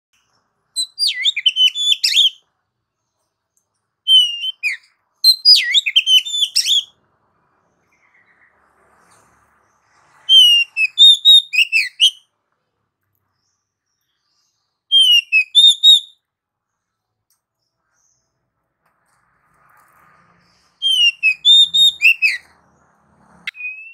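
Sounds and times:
bird singing whistles: 0:00.8 - 0:02.4, 0:04.1 - 0:07.0, 0:10.2 - 0:12.2, 0:14.9 - 0:16.2, 0:20.8 - 0:22.6, 0:23.5 - 0:23.9.

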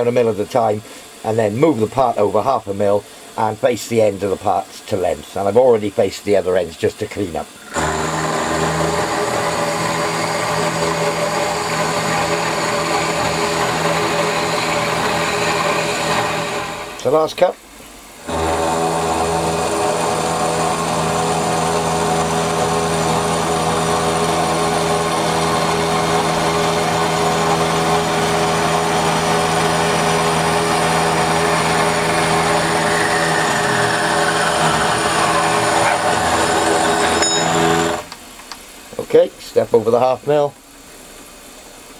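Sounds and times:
milling machine motor hum: 0:07.5 - 0:17.2, 0:18.2 - 0:38.2
end mill cutting metal: 0:07.5 - 0:17.3, 0:18.2 - 0:38.2.

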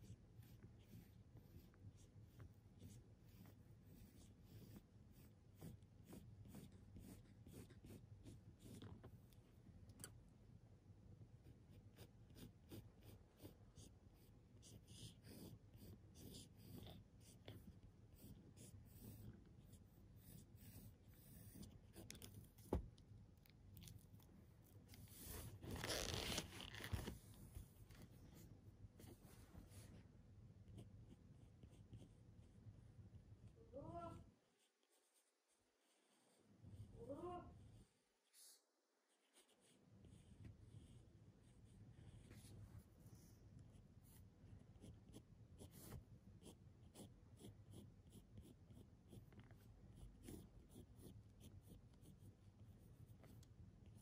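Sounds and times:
pencil scratching on paper: 0:00.0 - 0:09.1, 0:11.3 - 0:22.8, 0:30.6 - 0:32.6, 0:39.1 - 0:54.0.

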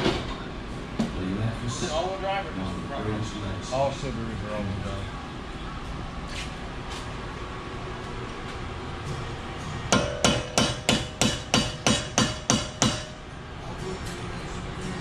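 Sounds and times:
hammer striking metal wheel hub: 0:09.9 - 0:13.2.

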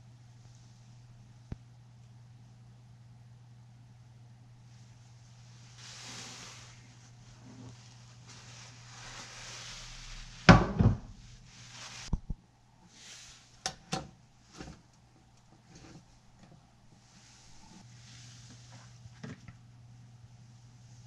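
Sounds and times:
soft hiss: 0:04.5 - 0:16.2.

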